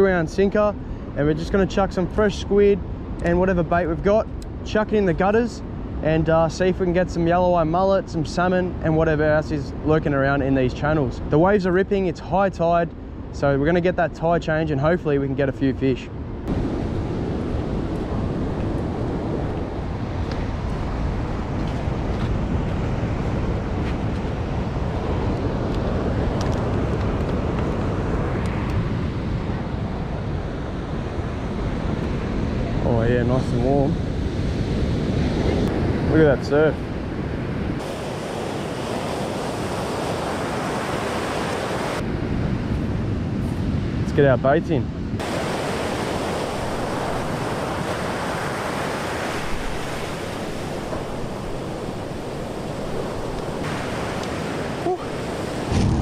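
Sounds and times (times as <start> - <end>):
wind rumble on microphone: 12.8 - 56.0
ocean surf breaking: 16.4 - 44.0, 44.9 - 56.0
breaking surf: 34.6 - 42.1, 45.2 - 56.0.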